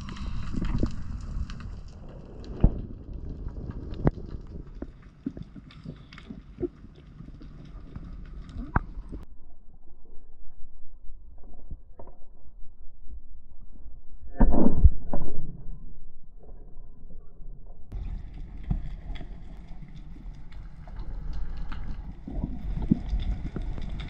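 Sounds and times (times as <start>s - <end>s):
faint crackling: 0.0s - 9.2s, 17.9s - 24.0s
underwater rumble and hiss: 0.0s - 9.3s, 17.9s - 24.0s.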